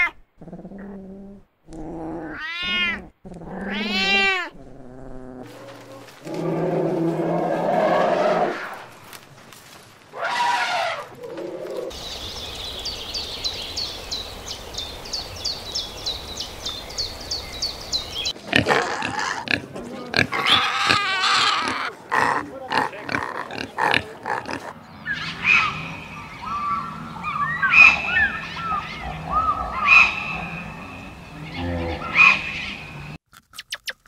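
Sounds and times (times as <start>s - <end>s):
pigs squealing and grunting: 10.2s - 11.9s, 18.4s - 30.7s, 31.3s - 32.8s
rising and falling calls: 23.6s - 33.2s.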